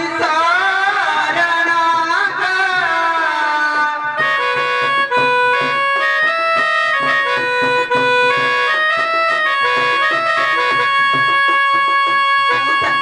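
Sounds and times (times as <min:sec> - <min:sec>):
reed or keyboard melody: 0:02.3 - 0:13.0
steady percussion beat: 0:04.4 - 0:13.0.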